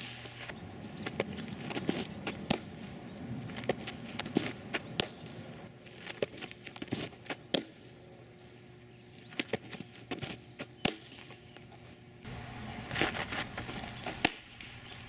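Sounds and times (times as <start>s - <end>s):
feet scuffing on dirt: 0.0s - 7.6s, 9.2s - 15.0s
softball popping into mitt: 1.1s - 2.9s, 3.6s - 5.4s, 6.1s - 7.8s, 9.3s - 11.4s, 14.0s - 14.8s.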